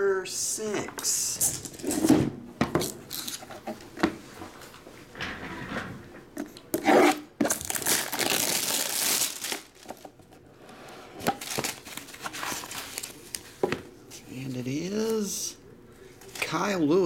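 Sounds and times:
plastic wrap tearing: 0:07.1 - 0:10.1, 0:11.4 - 0:13.4
plastic wrap crinkling: 0:07.4 - 0:10.4, 0:11.4 - 0:13.6.

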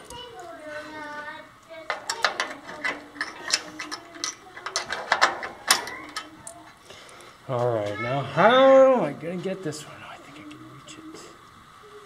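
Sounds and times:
small metal parts clinking: 0:01.9 - 0:06.6.

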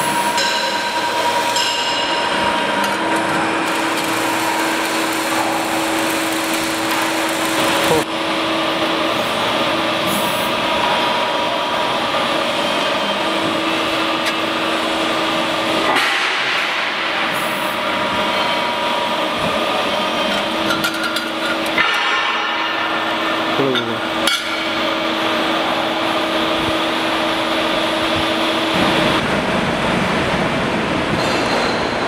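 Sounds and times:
falling machine whine: 0:00.0 - 0:20.7
machine hum and whir: 0:00.0 - 0:32.0.

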